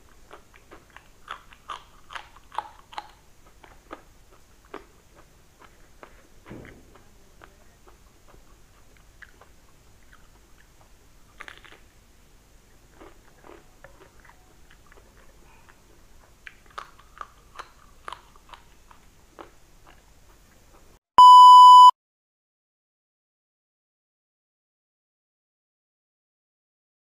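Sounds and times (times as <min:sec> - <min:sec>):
person chewing crunchy food: 0:00.0 - 0:21.0
test-tone beep: 0:21.2 - 0:21.9.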